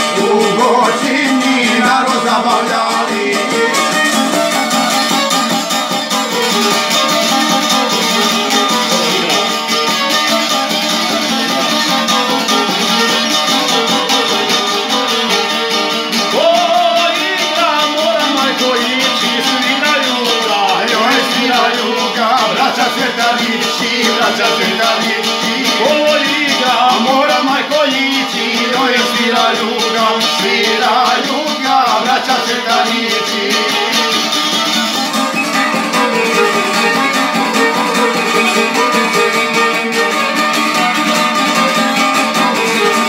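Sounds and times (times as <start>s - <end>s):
man singing: 0.0s - 4.7s, 8.3s - 9.8s, 16.3s - 34.4s, 35.9s - 40.6s
lute strummed: 0.0s - 43.0s
violin melody: 0.0s - 43.0s.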